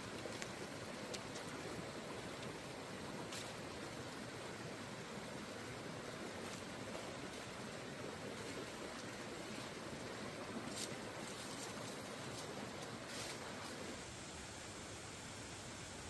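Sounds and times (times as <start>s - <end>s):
shallow stream flowing over rocks: 0.0s - 16.0s
plant stems rustling: 10.7s - 13.9s.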